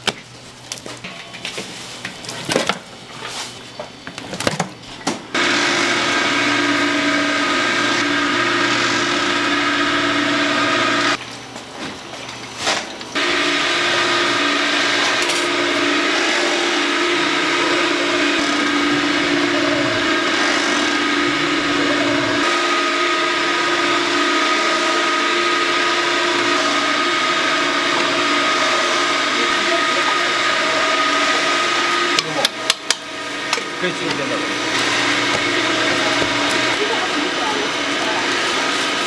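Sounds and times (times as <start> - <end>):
machinery humming and whirring: 0.9 - 39.0.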